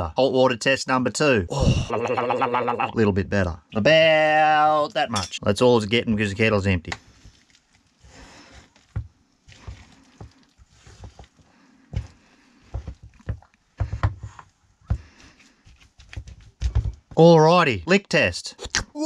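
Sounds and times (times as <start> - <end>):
spoon stirring wet dough: 6.9 - 17.2.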